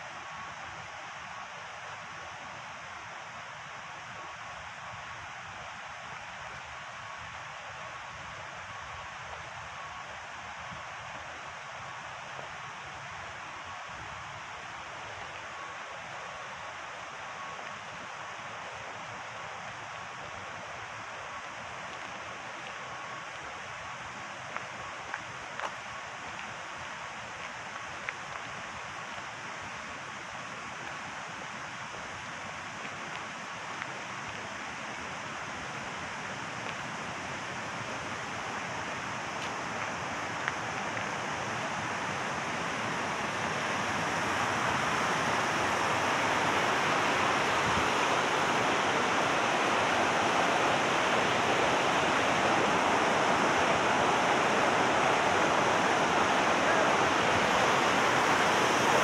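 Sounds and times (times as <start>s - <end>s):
river rapids rushing over dam: 14.3s - 59.0s.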